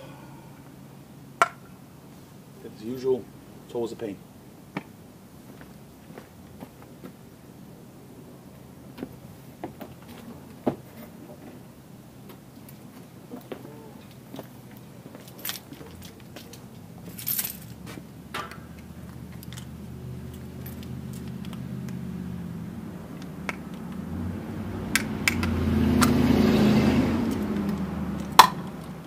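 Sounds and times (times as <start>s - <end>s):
vehicle passing: 13.2s - 29.0s.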